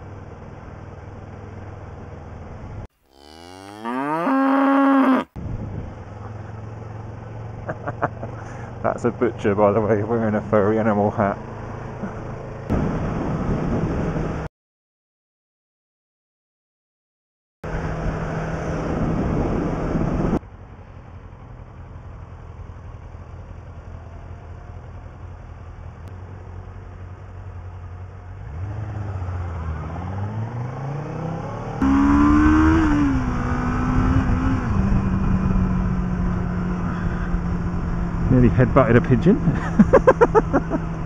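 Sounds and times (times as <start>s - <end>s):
road noise: 0.0s - 14.5s, 17.6s - 41.0s
motorcycle engine revving: 28.3s - 41.0s.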